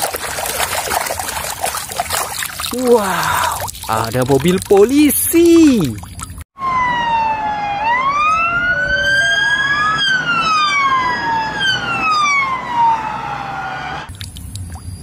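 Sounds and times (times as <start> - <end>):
police sirens wailing: 6.6 - 14.1.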